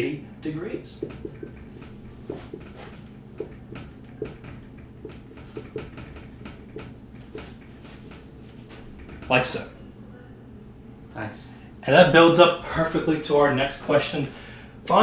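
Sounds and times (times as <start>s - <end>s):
marker writing on whiteboard: 1.0s - 9.4s.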